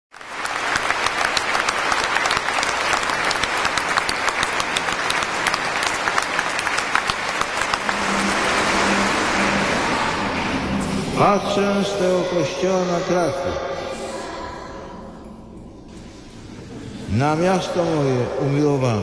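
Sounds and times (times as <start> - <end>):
crowd applauding: 0.1 - 12.4.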